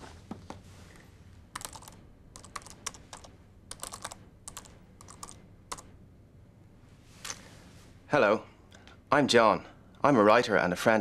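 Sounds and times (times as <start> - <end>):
laptop keyboard typing: 1.5 - 5.9.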